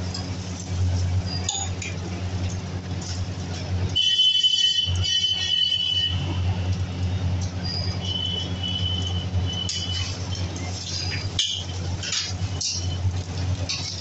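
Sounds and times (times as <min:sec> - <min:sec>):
thin metallic squeals: 0:01.2 - 0:01.9, 0:07.4 - 0:13.1
metal spatula scraping griddle: 0:09.7 - 0:14.0.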